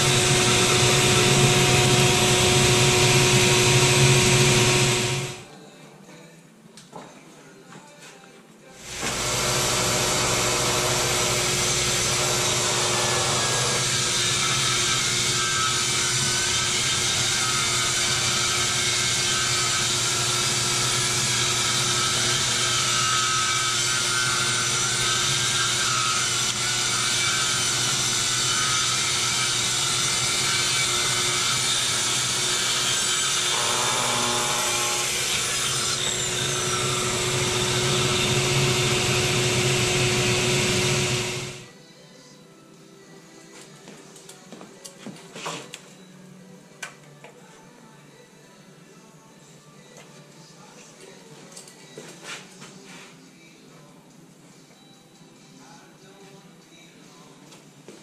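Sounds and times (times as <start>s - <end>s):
circular saw cutting wood: 0.0s - 5.4s, 8.8s - 41.7s
shop vacuum running: 0.0s - 5.5s, 8.8s - 41.7s.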